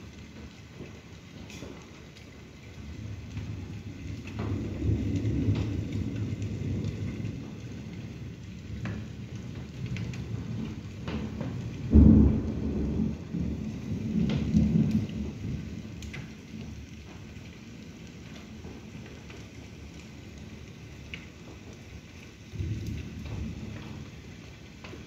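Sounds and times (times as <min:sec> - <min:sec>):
steady rain: 0:00.0 - 0:25.0
thunder rumbling: 0:02.4 - 0:25.0
thunder clap: 0:02.9 - 0:19.7, 0:22.4 - 0:25.0.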